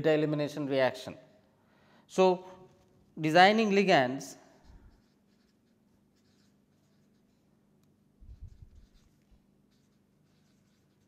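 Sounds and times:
felt-tip marker scratching on paper: 4.6s - 7.5s, 8.2s - 11.0s.

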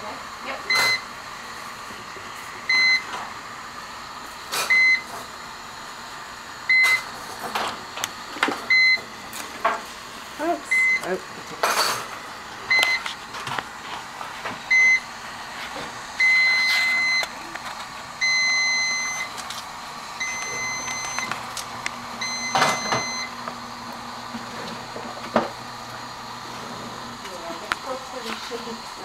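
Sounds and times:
hospital equipment alarm beeping: 0.6s - 1.1s, 2.7s - 3.1s, 4.6s - 5.1s, 6.7s - 7.1s, 8.7s - 9.1s, 10.7s - 11.2s, 12.7s - 13.1s, 14.7s - 15.1s, 16.2s - 17.4s, 18.2s - 19.4s, 20.2s - 21.6s, 22.2s - 23.4s.

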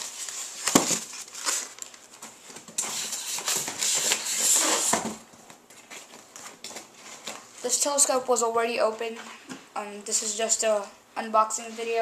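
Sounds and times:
cardboard and foam rustling: 0.0s - 7.9s.

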